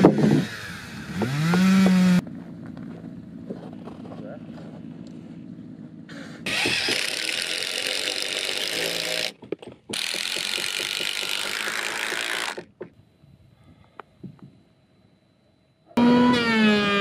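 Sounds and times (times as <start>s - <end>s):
impact driver hammering: 9.9s - 12.6s.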